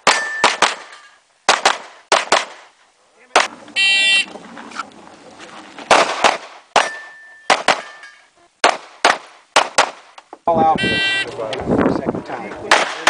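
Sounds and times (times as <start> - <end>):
pistol shots with echo: 0.0 - 2.6, 5.9 - 8.0, 8.6 - 10.0, 12.7 - 13.0
shot timer electronic beep: 3.8 - 4.3.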